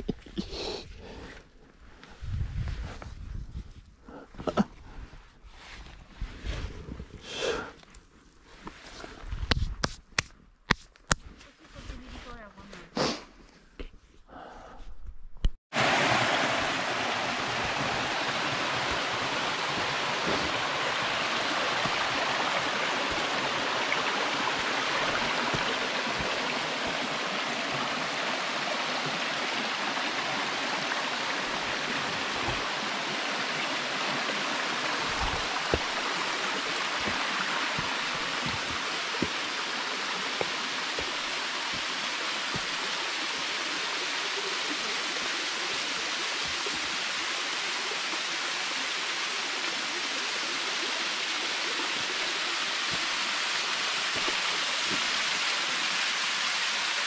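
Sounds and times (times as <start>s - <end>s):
water rushing in stream: 15.7s - 57.0s
waterfall pouring into pool: 15.7s - 57.0s
soft bumps: 36.8s - 39.4s.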